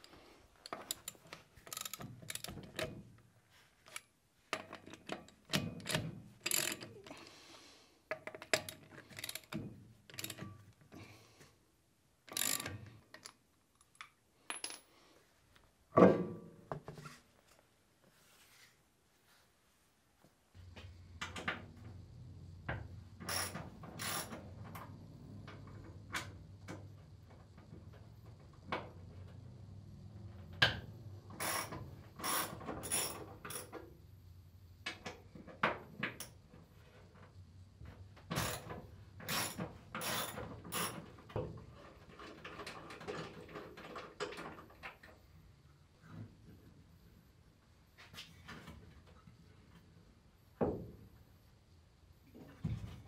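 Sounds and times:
sharp metal clicks and knocks: 0.7 - 3.0
socket ratchet clicking: 0.9 - 2.9, 8.2 - 10.4, 12.3 - 13.4.

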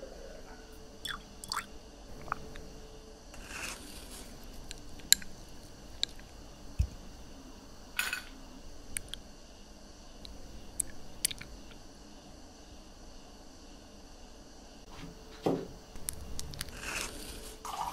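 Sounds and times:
water dripping and plopping: 1.0 - 2.6
liquid pouring hiss: 1.0 - 2.7.

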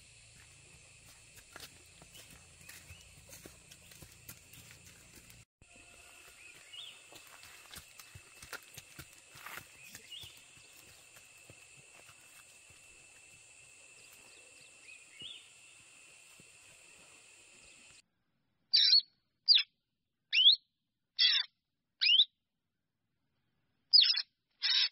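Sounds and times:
small bird chirp: 18.7 - 19.7, 20.3 - 20.6, 21.2 - 22.3, 23.9 - 24.9.

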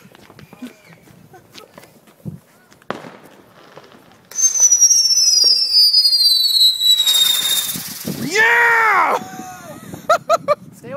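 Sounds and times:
hissing crackle: 2.9 - 9.0
firework whistling falling in pitch: 3.7 - 8.8.

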